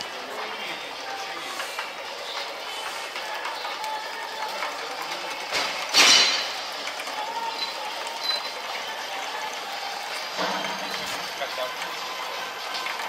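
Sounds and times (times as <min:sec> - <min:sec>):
chain conveyor rattling: 0:00.0 - 0:13.0
loud metal clank: 0:05.9 - 0:06.5, 0:10.4 - 0:11.1.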